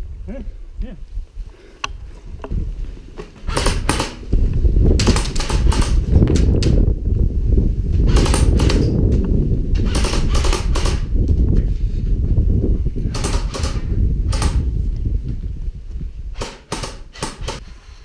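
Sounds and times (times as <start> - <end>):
steady low rumble: 0.0 - 18.0
airsoft gun firing rapid bursts: 3.5 - 4.2, 9.9 - 11.0.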